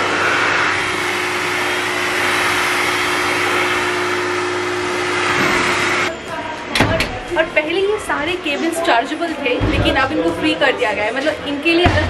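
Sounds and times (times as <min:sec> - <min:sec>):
hair dryer blowing air: 0:00.0 - 0:06.1.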